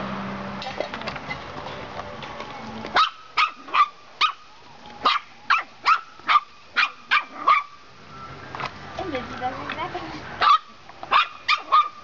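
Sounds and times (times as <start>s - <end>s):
puppy barking: 2.9s - 4.4s, 5.0s - 7.8s, 10.4s - 12.0s.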